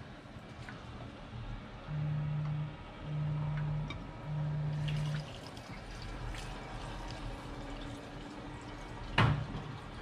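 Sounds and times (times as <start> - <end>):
fuel trickling into a can: 4.8 - 10.0.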